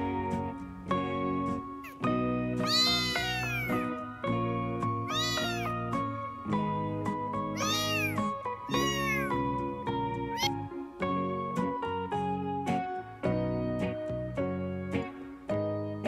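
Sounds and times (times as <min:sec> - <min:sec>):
background music: 0:00.0 - 0:16.0
kitten mewing: 0:01.8 - 0:04.0, 0:05.1 - 0:05.9, 0:07.5 - 0:09.4, 0:10.3 - 0:10.7.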